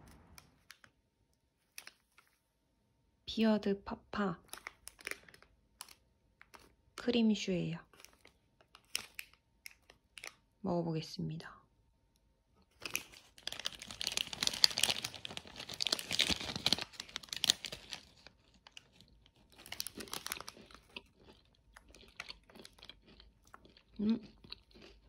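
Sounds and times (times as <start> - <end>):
paper wrapper crinkling: 4.4 - 6.8, 12.7 - 21.0
crisp pastry crunching: 4.4 - 7.0, 7.8 - 10.6, 12.6 - 25.0.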